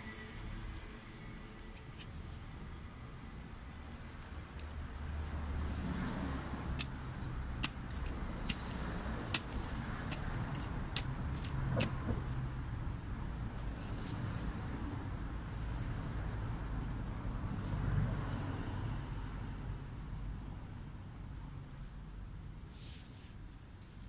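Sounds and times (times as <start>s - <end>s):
trowel scraping soil: 7.6s - 12.4s.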